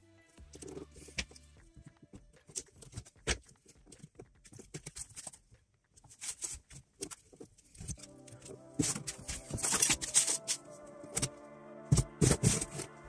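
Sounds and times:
wooden strips clicking and tapping: 0:00.5 - 0:10.6.

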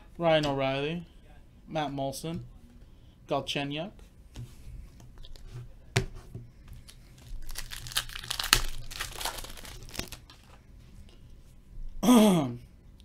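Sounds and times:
plastic wrapper tearing and crinkling: 0:06.9 - 0:10.6.

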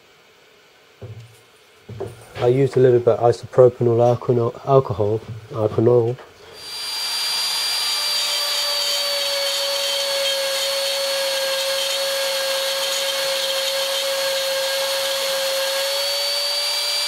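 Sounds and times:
router whining cutting metal: 0:06.6 - 0:17.0.

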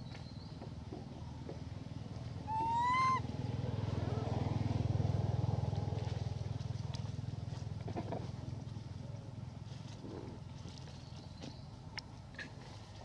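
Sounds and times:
low engine hum: 0:00.0 - 0:13.0
macaque coo call: 0:02.5 - 0:03.3.

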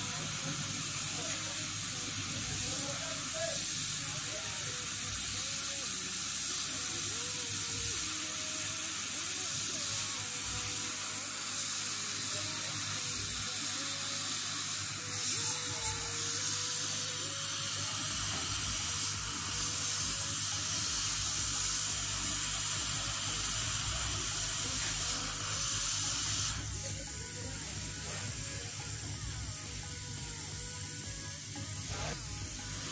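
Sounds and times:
hot air station blowing hiss: 0:00.0 - 0:32.9.

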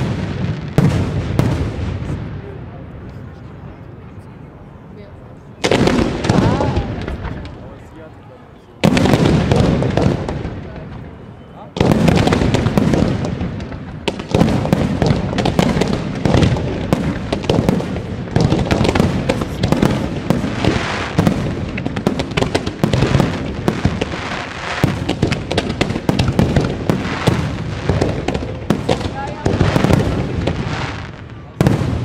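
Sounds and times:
fireworks bangs and crackling: 0:00.0 - 0:32.0.

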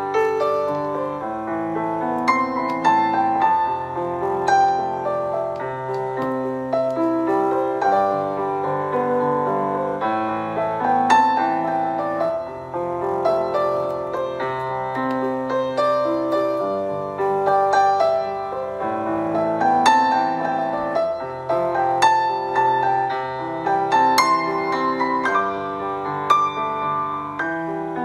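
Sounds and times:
soft solo piano music: 0:00.0 - 0:28.0.

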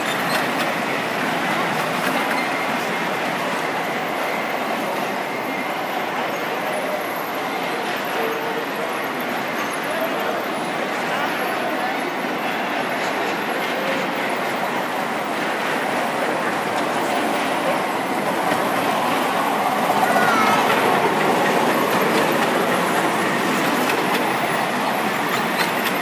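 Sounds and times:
miniature train wheels clattering: 0:00.0 - 0:04.2, 0:12.4 - 0:26.0.

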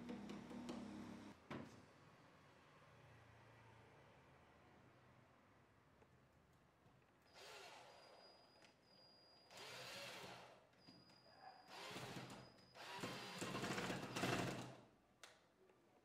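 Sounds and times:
cordless drill driving screw: 0:07.3 - 0:08.2, 0:09.5 - 0:10.6, 0:11.7 - 0:14.6.

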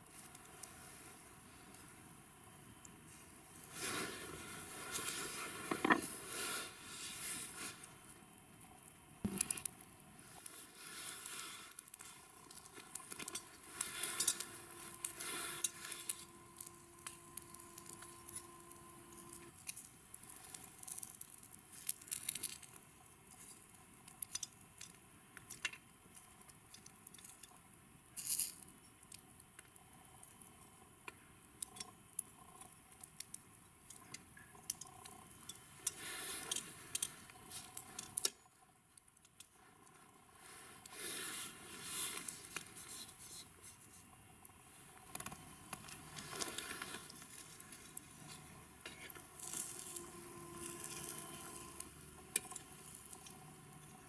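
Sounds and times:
charcoal crackling: 0:00.0 - 0:54.0
beef sizzling: 0:08.8 - 0:23.4, 0:40.4 - 0:42.5, 0:45.5 - 0:54.0.

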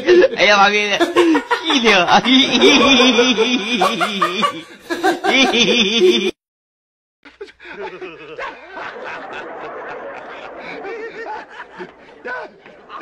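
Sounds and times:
person snickering: 0:01.0 - 0:06.4, 0:10.2 - 0:13.0.

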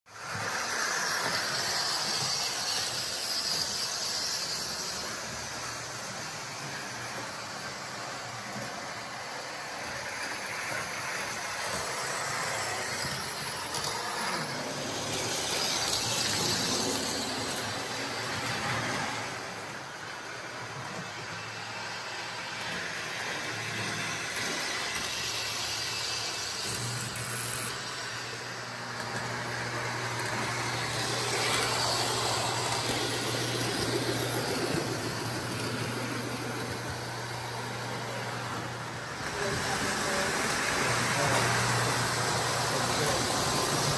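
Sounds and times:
model train whirring: 0:00.1 - 0:43.9.

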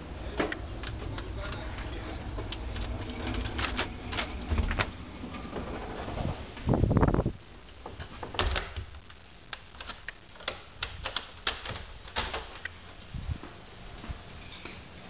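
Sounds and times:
sharp clicks and taps: 0:08.4 - 0:12.8.

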